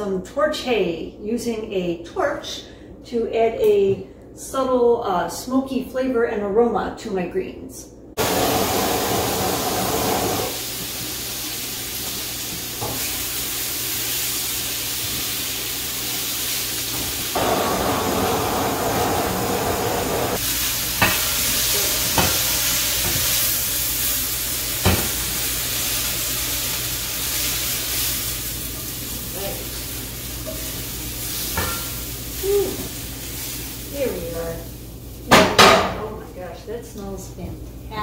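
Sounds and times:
gas torch hissing: 8.2 - 32.3
greens sizzling in pan: 8.2 - 35.4.

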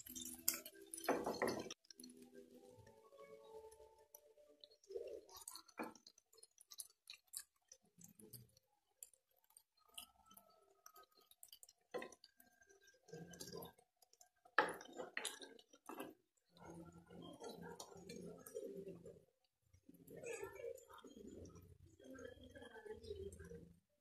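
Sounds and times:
spatula clinking pan: 0.0 - 2.2
liquid simmering in skillet: 0.0 - 23.5.

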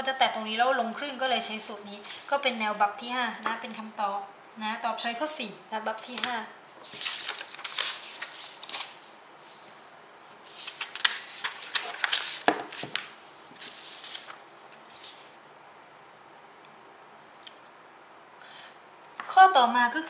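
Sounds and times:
paper rustling and sliding: 6.0 - 15.5
paper flicks and taps: 10.6 - 13.1.

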